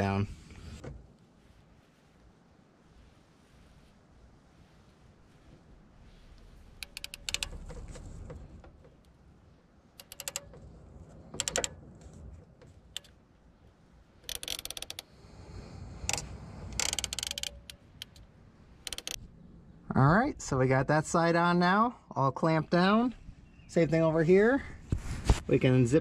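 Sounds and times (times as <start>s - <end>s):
clamp tool ratcheting clicks: 6.8s - 8.0s, 10.0s - 10.7s, 11.4s - 11.8s, 14.2s - 15.1s, 16.1s - 18.2s, 18.8s - 19.2s.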